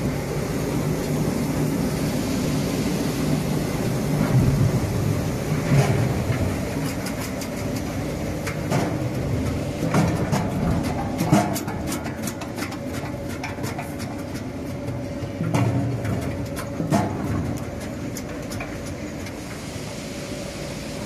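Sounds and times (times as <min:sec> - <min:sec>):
machine hum: 0:00.0 - 0:21.0.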